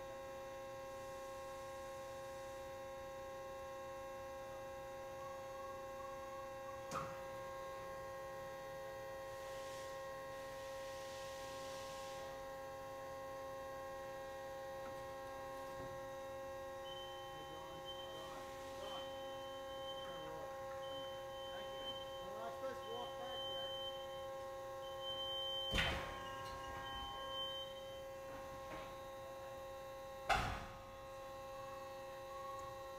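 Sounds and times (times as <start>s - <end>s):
machinery hum: 0.0s - 32.9s
high tone switching on and off: 16.9s - 29.0s.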